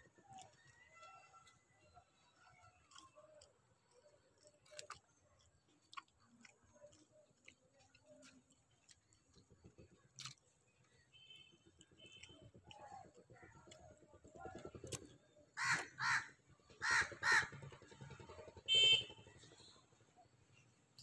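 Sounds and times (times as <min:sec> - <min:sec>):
close chewing: 0:00.0 - 0:15.9, 0:20.5 - 0:21.0.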